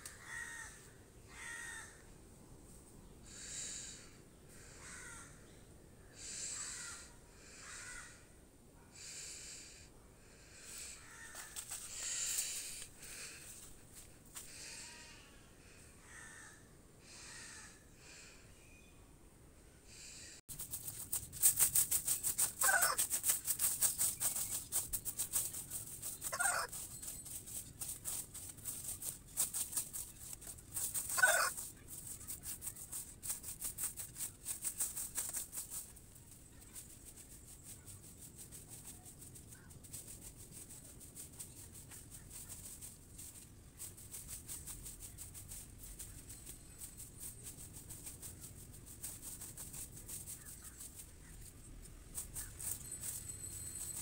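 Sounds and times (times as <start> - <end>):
chicken calling: 22.4 - 23.0, 26.0 - 27.0, 30.8 - 31.6.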